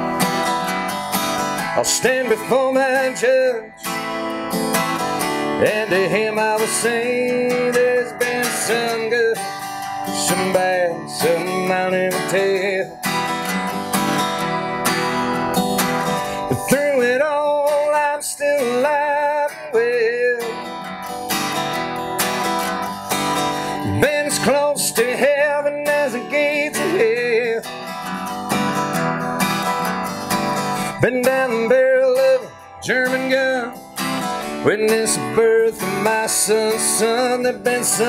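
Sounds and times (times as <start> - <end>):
acoustic guitar strumming: 0.0 - 38.0
wavering melody with vibrato: 0.0 - 38.0
person singing: 1.6 - 4.1, 5.3 - 13.8, 16.0 - 20.9, 23.5 - 28.0, 30.6 - 38.0.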